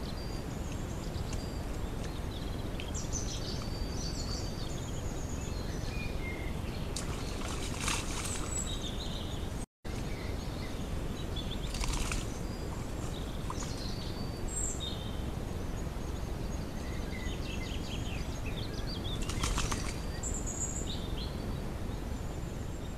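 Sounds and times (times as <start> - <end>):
splashing and rustling in mud: 6.9 - 9.1, 11.6 - 13.9, 19.1 - 20.3.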